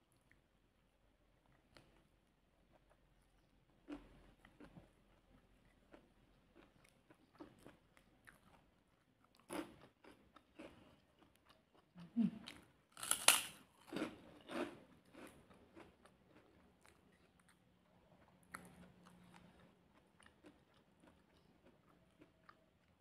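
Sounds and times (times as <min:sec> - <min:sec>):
soft chewing: 0:00.0 - 0:23.0
crisp cracker crunching: 0:12.9 - 0:14.6.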